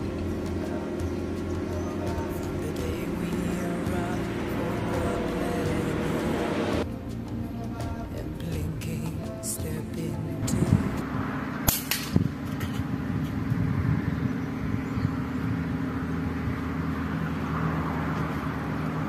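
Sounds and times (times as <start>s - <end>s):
low background rumble: 0.0s - 11.4s.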